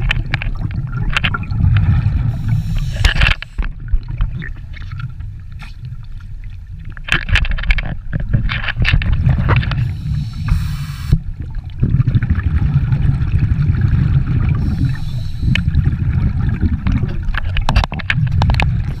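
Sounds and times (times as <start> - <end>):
exhaled bubbles rumbling: 0.0 - 19.0
scuba regulator hiss: 2.3 - 3.6, 9.8 - 11.2, 14.6 - 15.7.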